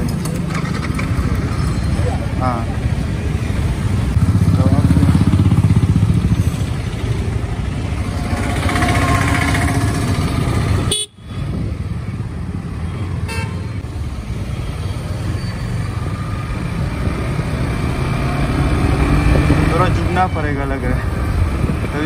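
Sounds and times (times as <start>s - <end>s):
motorcycle engine and road rumble: 0.0s - 22.0s
vehicle horn: 10.9s - 11.3s, 13.2s - 13.7s.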